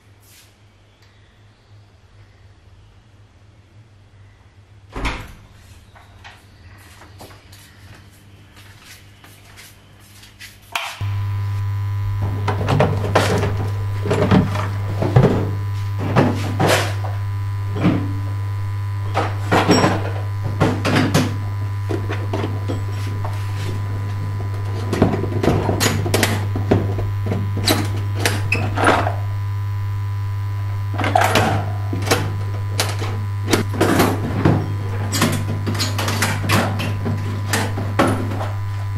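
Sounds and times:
low electrical hum: 11.0s - 38.9s.

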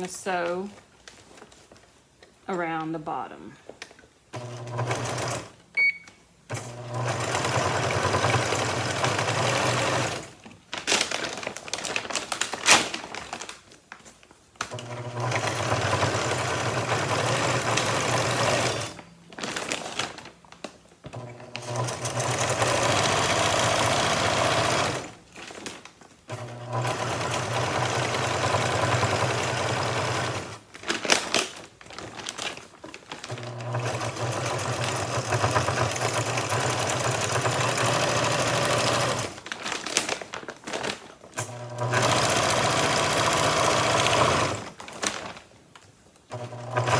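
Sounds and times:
sewing machine stitching: 4.3s - 5.6s, 6.5s - 10.4s, 14.7s - 19.9s, 21.1s - 25.2s, 26.3s - 30.6s, 33.2s - 39.4s, 41.4s - 45.3s, 46.3s - 46.9s
stiff sack crinkling: 10.7s - 14.3s, 19.3s - 20.8s, 30.7s - 33.7s, 39.2s - 41.4s, 44.7s - 45.8s.

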